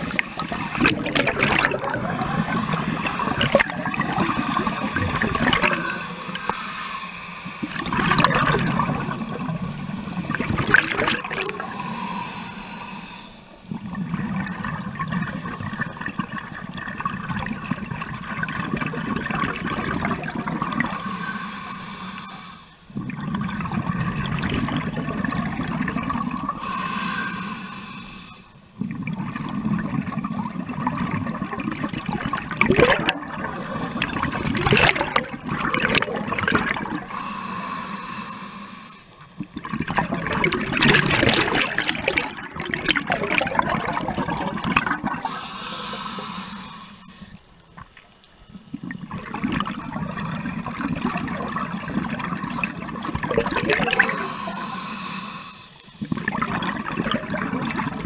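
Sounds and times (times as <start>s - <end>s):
bubbling exhalations underwater: 0.0s - 6.6s, 7.6s - 12.4s, 13.7s - 21.0s, 23.0s - 26.8s, 28.8s - 37.3s, 39.4s - 46.0s, 48.6s - 54.8s, 56.0s - 58.0s
regulator hissing inhalations: 2.3s - 7.8s, 11.5s - 13.6s, 20.9s - 23.0s, 26.6s - 28.6s, 33.4s - 34.6s, 37.0s - 39.2s, 45.2s - 47.5s, 53.8s - 56.3s.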